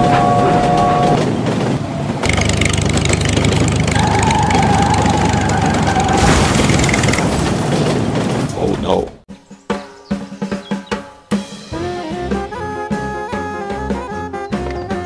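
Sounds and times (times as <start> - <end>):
toy tractor engine: 2.2 - 7.4.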